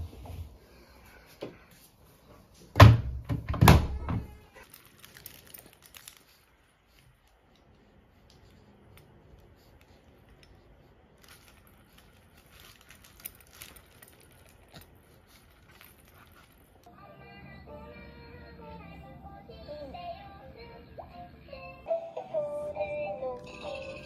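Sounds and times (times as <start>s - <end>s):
washing machine door thud: 2.8s - 4.3s
faint rustling: 4.2s - 17.0s.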